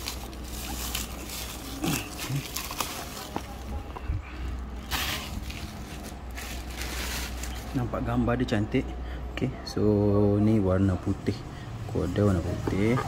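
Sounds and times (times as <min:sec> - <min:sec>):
wrap or tape tearing: 0:00.0 - 0:03.6, 0:04.8 - 0:07.6
bubble wrap crinkling: 0:00.0 - 0:08.1.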